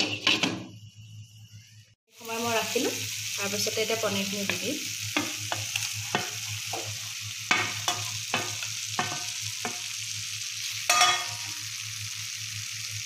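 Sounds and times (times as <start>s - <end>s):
spatula scraping and knocking pan: 0.0s - 0.7s, 4.4s - 10.0s
gravy sizzling: 2.1s - 13.0s.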